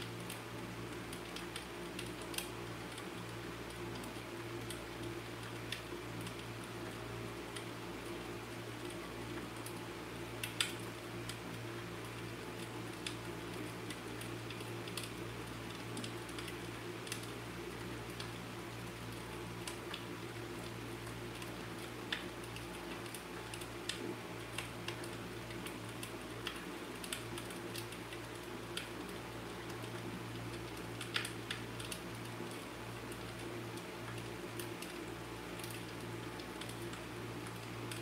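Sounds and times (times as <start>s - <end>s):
fireplace crackling: 0.0s - 38.0s.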